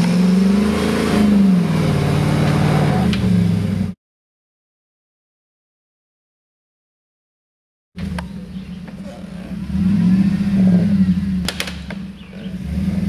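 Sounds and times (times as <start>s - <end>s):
car engine revving: 0.0s - 4.0s, 8.0s - 13.0s.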